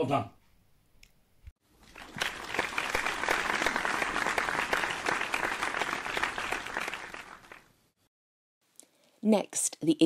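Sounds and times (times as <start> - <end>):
applause: 1.8 - 7.7.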